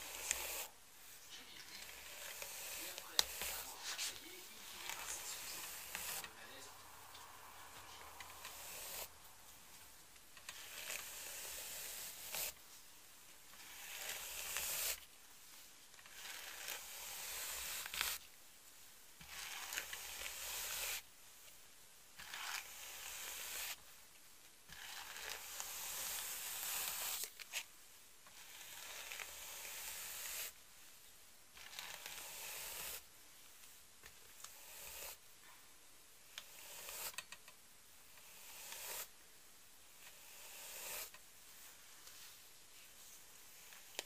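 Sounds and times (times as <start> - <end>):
hairbrush strokes through hair: 0.0 - 12.9, 13.5 - 18.2, 19.2 - 21.1, 22.2 - 23.9, 24.7 - 27.7, 28.3 - 30.6, 31.6 - 33.1, 34.3 - 35.2, 36.4 - 37.2, 38.2 - 39.2, 40.0 - 44.0.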